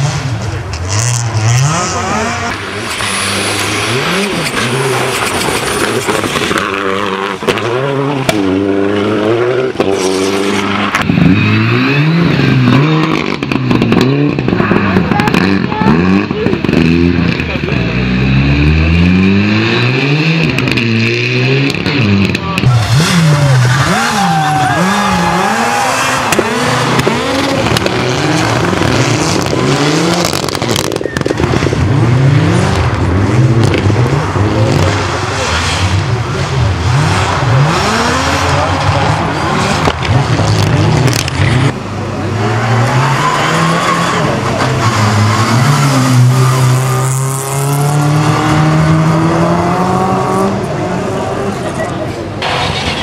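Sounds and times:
rally car engines revving: 0:00.0 - 0:53.0
exhaust cracks: 0:21.7 - 0:42.3.

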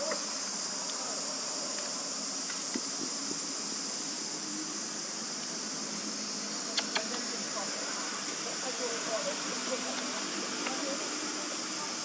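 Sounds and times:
insect chorus drone: 0:00.0 - 0:12.0
sharp click: 0:06.7 - 0:07.2.

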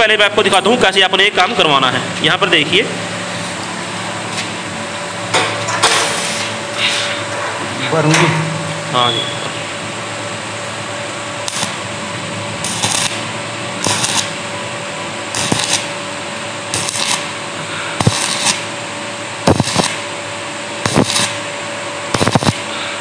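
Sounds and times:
steady welder hum: 0:00.0 - 0:23.0
arc welding crackling: 0:05.4 - 0:07.3, 0:11.3 - 0:22.8.

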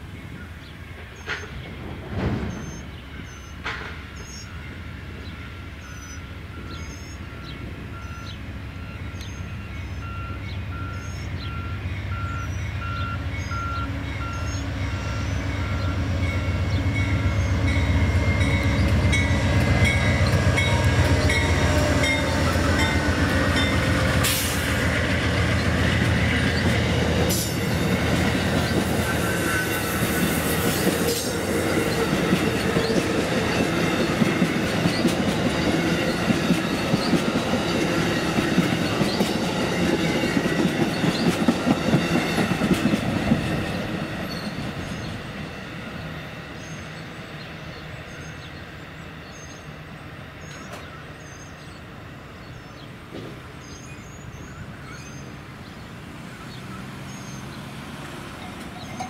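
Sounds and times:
diesel locomotive rumble: 0:00.0 - 0:51.2
train wheels clattering over rails: 0:00.9 - 0:04.5, 0:15.2 - 0:46.8.

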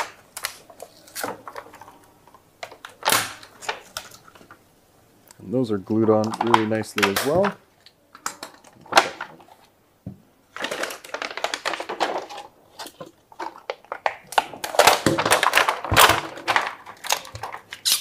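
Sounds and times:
plastic film crinkling and rustling: 0:00.0 - 0:04.6, 0:05.9 - 0:09.8, 0:10.5 - 0:18.0
handling noise of plastic case: 0:10.5 - 0:17.8.

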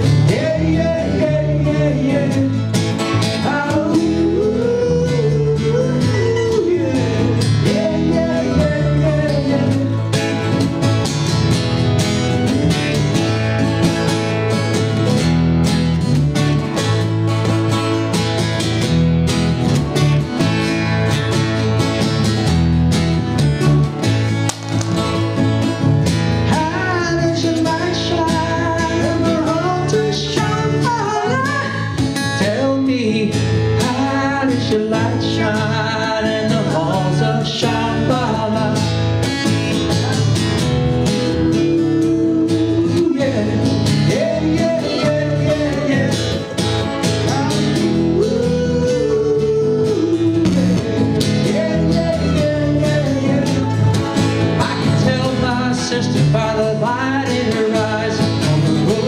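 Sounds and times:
person singing lead melody: 0:00.0 - 0:10.6, 0:26.4 - 0:38.9, 0:41.0 - 0:46.6, 0:47.2 - 0:59.0
acoustic guitar strumming: 0:00.0 - 0:59.0.

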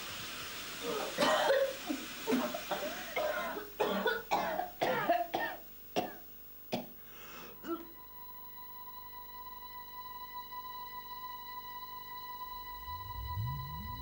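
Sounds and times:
coughing: 0:00.8 - 0:07.0, 0:07.6 - 0:08.0
steady music tones: 0:07.6 - 0:14.0.

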